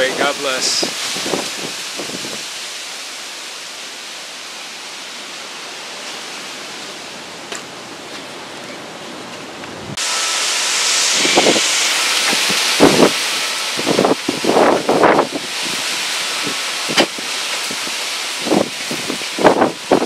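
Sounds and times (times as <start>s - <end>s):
wind rushing through foliage: 0.0s - 20.0s.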